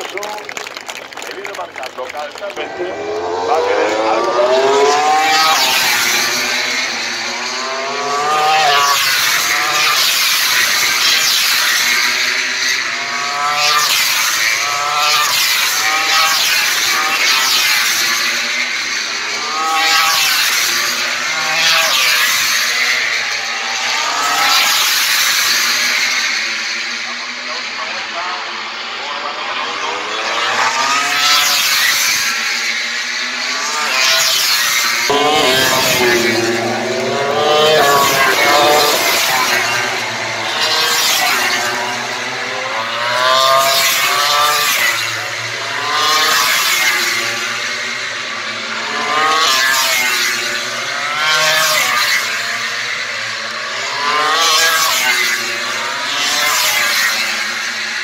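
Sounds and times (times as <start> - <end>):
racing motorcycles accelerating: 1.3 - 26.8, 29.6 - 58.0
motorcycle engine accelerating: 2.6 - 11.7, 34.9 - 45.1.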